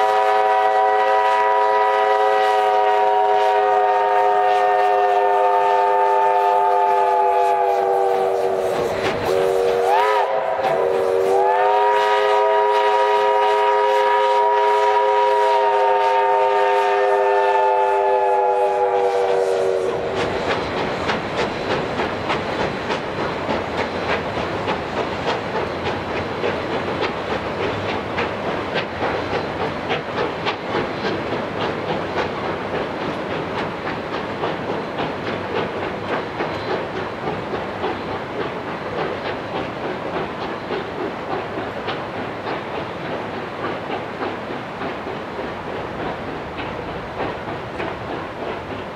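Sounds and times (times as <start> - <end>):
steam locomotive whistle: 0.0 - 20.2
train wheels clattering over rails: 0.0 - 48.9.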